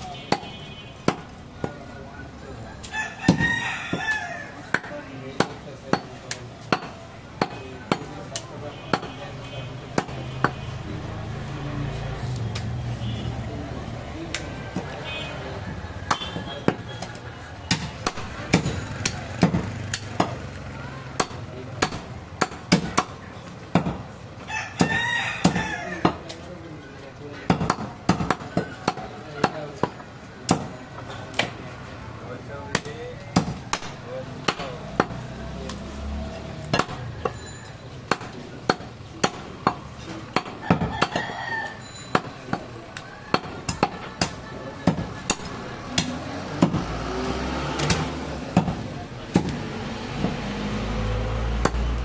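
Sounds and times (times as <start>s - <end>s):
cleaver chopping meat on wood: 0.3s - 1.8s, 3.2s - 9.2s, 9.9s - 10.6s, 16.0s - 24.1s, 24.8s - 26.4s, 27.4s - 31.6s, 32.7s - 35.2s, 36.5s - 37.4s, 38.1s - 41.3s, 43.3s - 47.0s, 47.8s - 50.5s, 51.5s - 52.0s.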